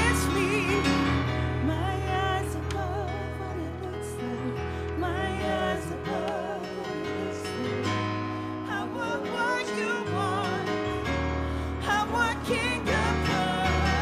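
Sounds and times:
woman singing with vibrato: 0.0 - 8.0, 11.8 - 14.0.

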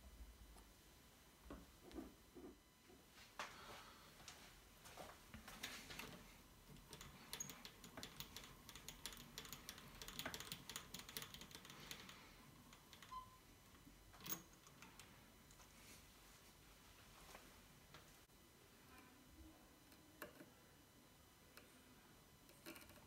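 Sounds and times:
small metal parts clicking: 6.8 - 13.2.

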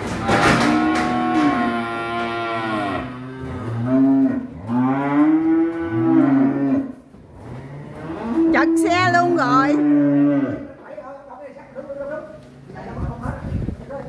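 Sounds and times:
cattle mooing: 0.2 - 10.8.

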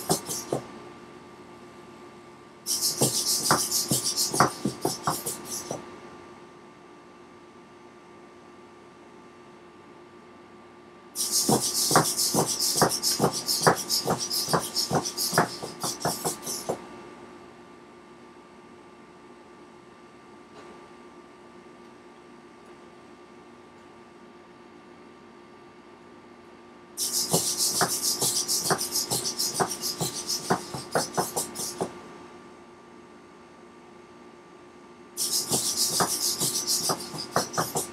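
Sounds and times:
metal legs tapping on wooden floor: 0.0 - 0.6, 2.7 - 5.8, 11.4 - 16.8, 27.2 - 31.9, 35.3 - 37.9.

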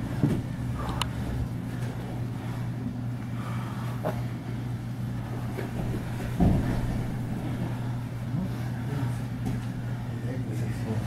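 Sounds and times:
low electric hum: 0.0 - 11.0
body thumping on a mat: 5.4 - 7.7.

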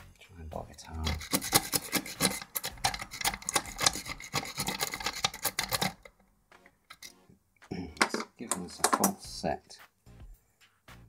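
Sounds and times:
lock pick scraping and clicking: 0.9 - 6.2, 6.9 - 7.2.

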